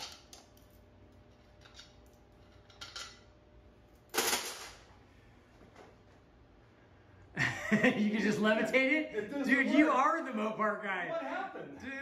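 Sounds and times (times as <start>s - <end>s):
metal parts clinking: 4.0s - 4.8s.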